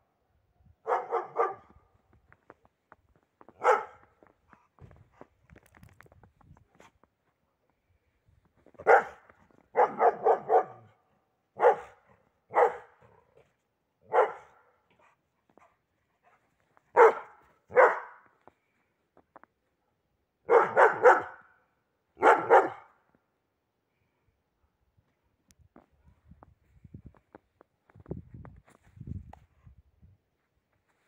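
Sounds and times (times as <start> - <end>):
dog barking: 0.8 - 1.8, 3.6 - 4.0, 8.8 - 11.0, 11.6 - 13.2, 14.0 - 14.8, 16.9 - 18.2, 20.5 - 21.5, 22.2 - 23.0.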